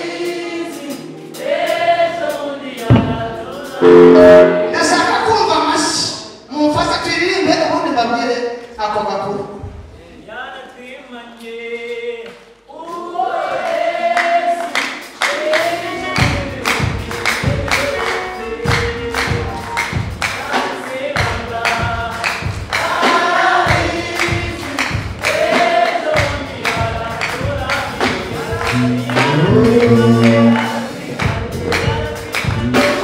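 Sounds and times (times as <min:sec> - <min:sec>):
choir singing gospel: 0:00.0 - 0:05.8, 0:11.3 - 0:33.0
steady percussion beat: 0:02.8 - 0:05.2, 0:15.0 - 0:33.0.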